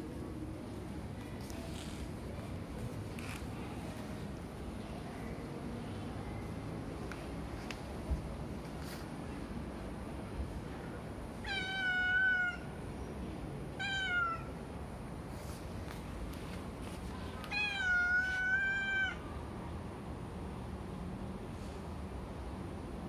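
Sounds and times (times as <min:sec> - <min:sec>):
cat meowing: 0:11.4 - 0:12.8, 0:13.8 - 0:14.5, 0:17.3 - 0:19.2.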